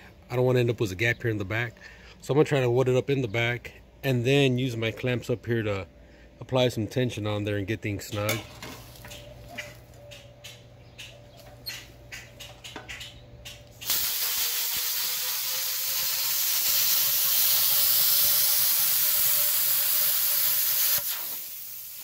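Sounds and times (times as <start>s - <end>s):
torch clicking: 12.6s - 21.9s
plasma cutter hissing: 13.8s - 22.0s.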